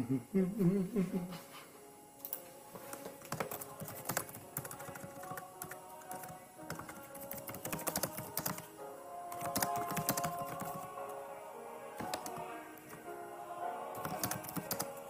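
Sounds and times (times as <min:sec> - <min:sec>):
background music with held notes: 0:00.0 - 0:15.0
keyboard typing clicks: 0:02.2 - 0:08.7, 0:09.3 - 0:10.9, 0:12.0 - 0:13.0, 0:14.0 - 0:15.0.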